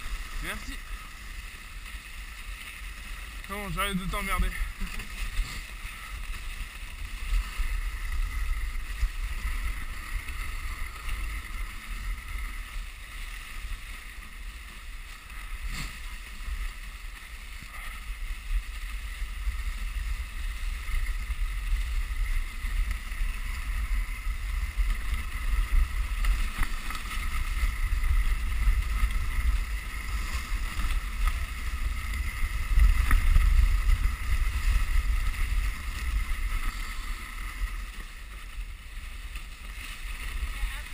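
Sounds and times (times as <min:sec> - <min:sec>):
sled runners scraping on snow: 0:00.0 - 0:40.9
wind buffeting microphone: 0:17.9 - 0:38.9.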